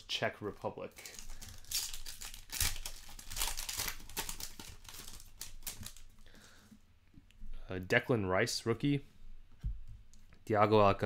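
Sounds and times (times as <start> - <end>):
foil pack crinkling and tearing: 1.0 - 6.2.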